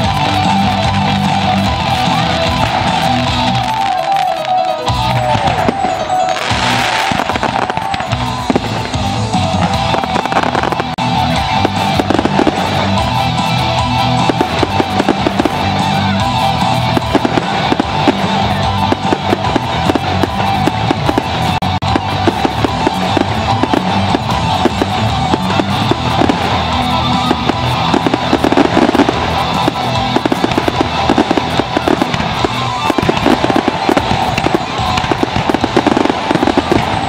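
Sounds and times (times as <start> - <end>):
fireworks crackling and popping: 0.0 - 37.0
music: 0.0 - 37.0.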